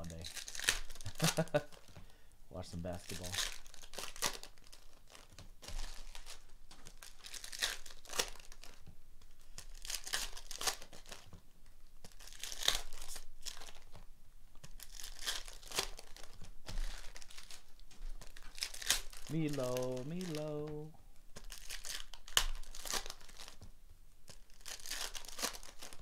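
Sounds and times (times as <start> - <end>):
foil wrappers tearing and crinkling: 0.0 - 2.0, 2.8 - 8.8, 9.4 - 11.3, 12.0 - 26.0
cards handled: 0.0 - 2.1, 12.0 - 20.8, 21.4 - 26.0.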